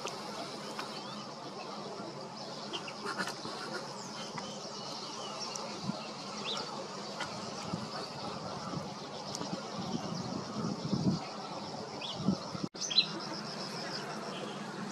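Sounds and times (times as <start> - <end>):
distant bird calls: 0.0 - 14.9.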